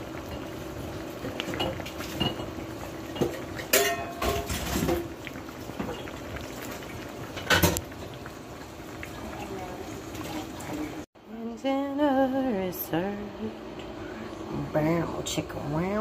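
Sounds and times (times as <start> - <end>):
chowder bubbling in a pan: 0.0 - 11.1
cookware clinking and scraping: 1.4 - 5.1.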